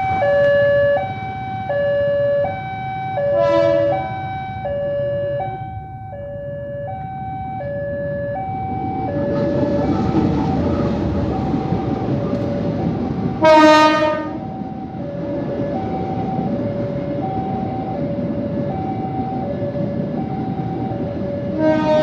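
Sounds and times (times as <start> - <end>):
train rumble: 0.0 - 22.0
two-tone crossing alarm: 0.0 - 22.0
short horn blast: 3.4 - 4.1, 13.4 - 14.4, 21.6 - 22.0.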